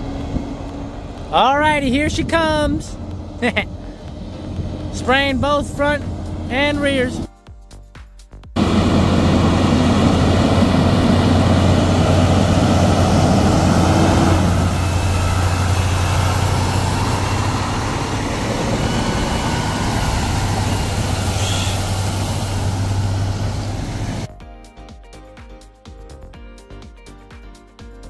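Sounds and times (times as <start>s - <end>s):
diesel truck engine running: 0.0s - 7.3s, 8.6s - 24.3s
water sprayers hissing: 9.3s - 24.3s.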